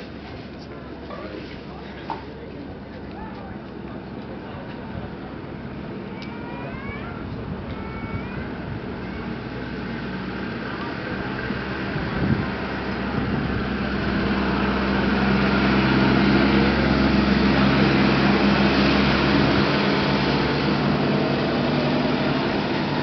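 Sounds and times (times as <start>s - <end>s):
jet aircraft passing: 8.4s - 23.0s.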